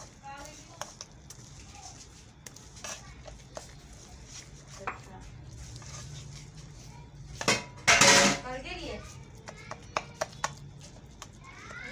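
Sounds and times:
spatula scraping a pan: 0:00.0 - 0:09.5.

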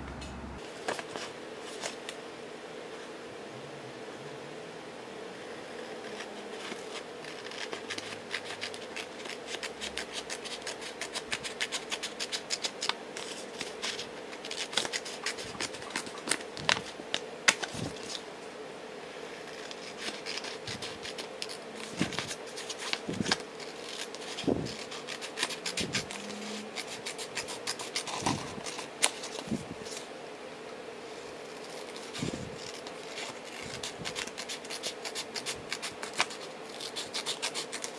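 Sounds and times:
steady low hum: 0:00.0 - 0:00.7
scissors snipping paper: 0:05.8 - 0:18.2, 0:19.6 - 0:30.0, 0:31.6 - 0:37.9.

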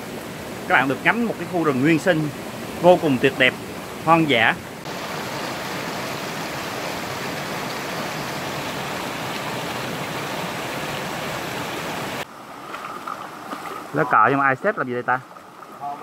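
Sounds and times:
waterfall rushing over rocks: 0:00.0 - 0:12.3.

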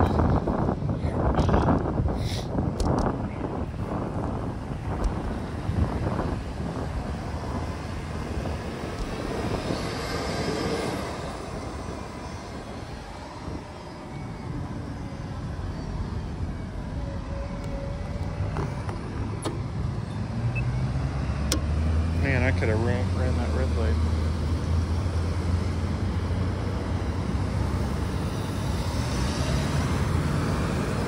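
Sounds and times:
street traffic noise: 0:00.0 - 0:31.0
wind rumbling on microphone: 0:00.0 - 0:31.0
vehicle passing: 0:04.3 - 0:31.0.

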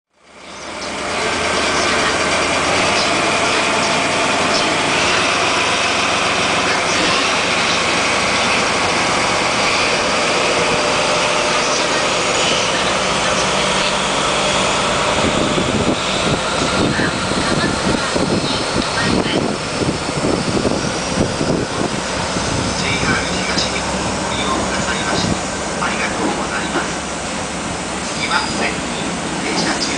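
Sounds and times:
diesel locomotive engine running: 0:00.1 - 0:29.9.

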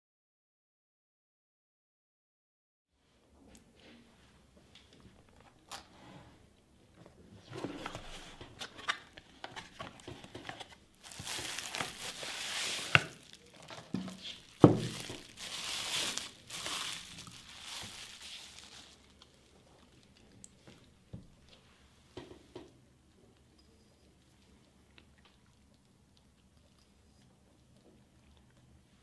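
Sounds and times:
cardboard box being opened: 0:07.5 - 0:19.0
plastic wrapping crinkling: 0:07.8 - 0:20.8.

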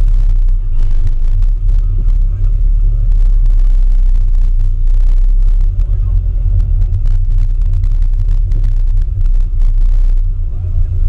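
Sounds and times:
car engine rumbling at low revs: 0:00.0 - 0:11.0.

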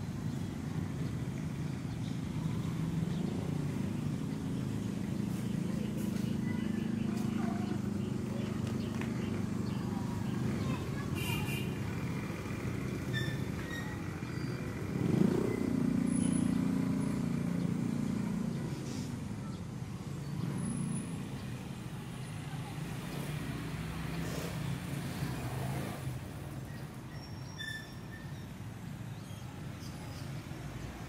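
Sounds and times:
background street noise: 0:00.0 - 0:31.0
vehicle engine revving: 0:11.9 - 0:19.1, 0:22.8 - 0:26.3.

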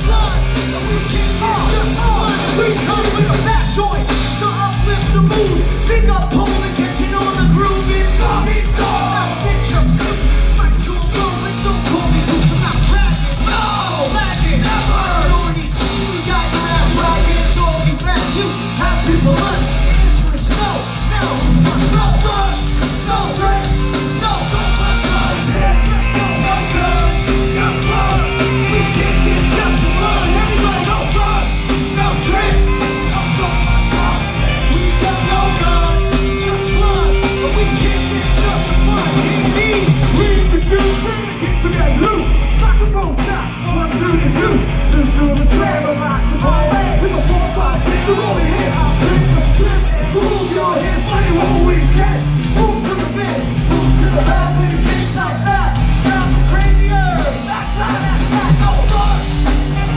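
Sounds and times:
live rap-rock band: 0:00.0 - 0:59.9
shouted vocal: 0:20.4 - 0:59.9.

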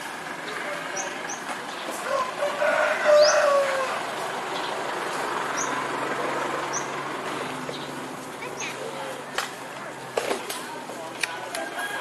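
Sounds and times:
low vehicle hum: 0:00.0 - 0:11.6
bird chirping: 0:04.5 - 0:05.8, 0:06.6 - 0:07.0.

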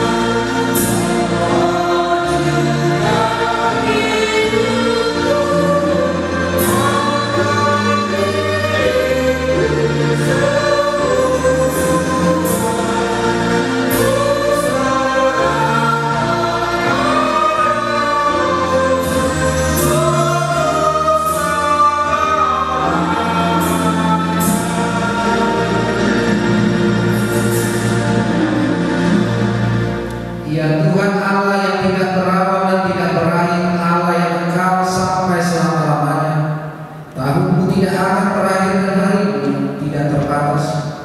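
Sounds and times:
choir singing a hymn: 0:00.0 - 0:41.0.

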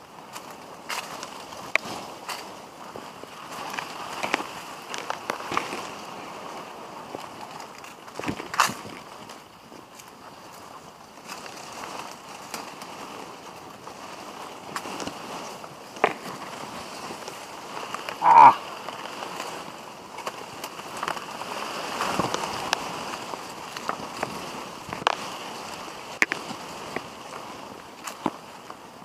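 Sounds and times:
footsteps on dirt trail: 0:00.0 - 0:28.8
leaves and branches brushing: 0:00.0 - 0:29.0
short vocal grunt: 0:18.2 - 0:18.6.

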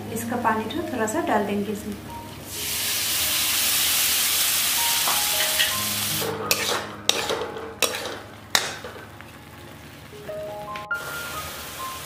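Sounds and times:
hot oil sizzling with hiss: 0:00.1 - 0:12.0
spatula scraping pan: 0:05.3 - 0:09.1.

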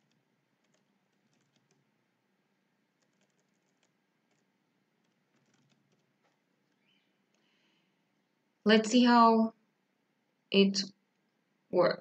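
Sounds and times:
faint typing on computer keyboard: 0:00.0 - 0:02.0, 0:02.8 - 0:07.8, 0:11.0 - 0:11.4.

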